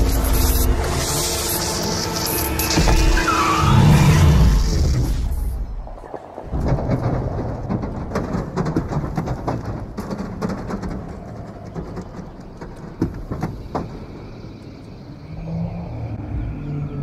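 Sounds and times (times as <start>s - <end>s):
scattered clicks and knocks: 6.5s - 14.2s.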